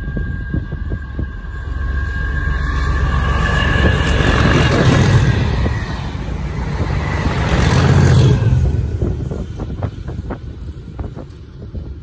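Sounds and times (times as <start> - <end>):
high whistling note: 0.0 - 7.3
diesel locomotive engine passing: 0.0 - 12.0.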